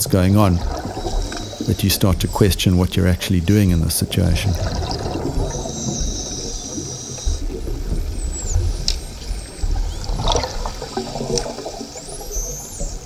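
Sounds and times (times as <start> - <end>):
rushing bubbling water underwater: 0.0 - 13.0
dolphins whistling: 0.6 - 13.0
sharp clicks: 8.8 - 9.1.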